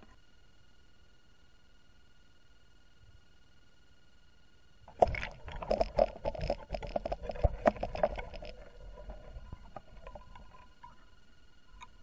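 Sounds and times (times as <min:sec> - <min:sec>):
rapid knocking underwater: 0:04.9 - 0:11.2
muffled underwater sloshing: 0:04.9 - 0:12.0.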